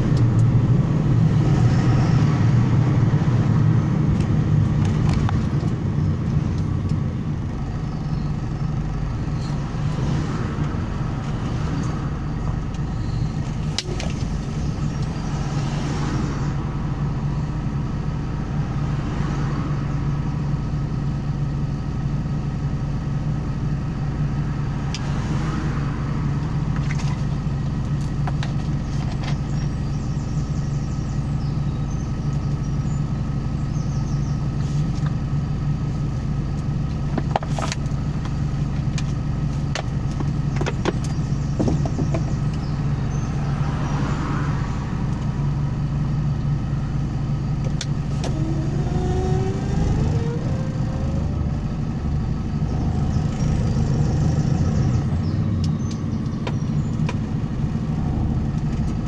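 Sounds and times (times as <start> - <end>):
truck engine idling: 2.6 - 9.9, 10.5 - 15.4, 16.3 - 59.0
rising whine: 42.5 - 59.0.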